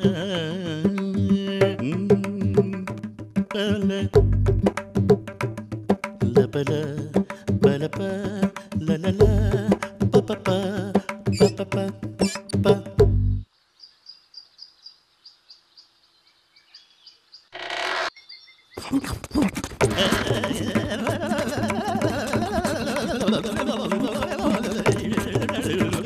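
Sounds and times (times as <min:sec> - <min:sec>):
high repeated chirp: 0:11.3 - 0:11.6, 0:12.2 - 0:12.6.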